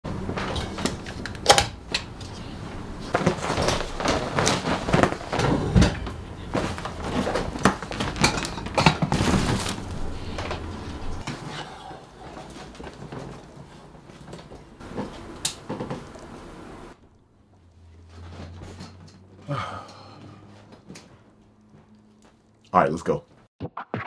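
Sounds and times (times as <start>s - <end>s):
fabric rustling: 2.6s - 8.5s, 9.1s - 11.2s.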